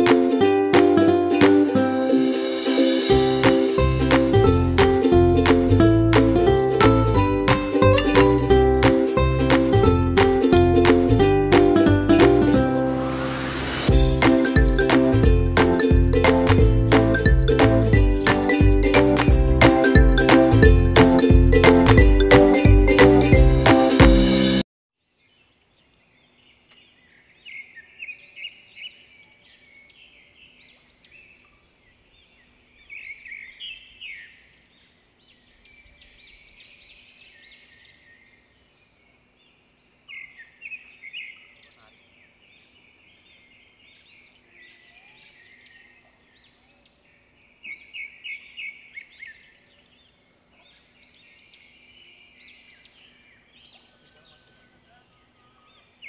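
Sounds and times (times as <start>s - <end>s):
birds twittering softly: 25.0s - 56.0s.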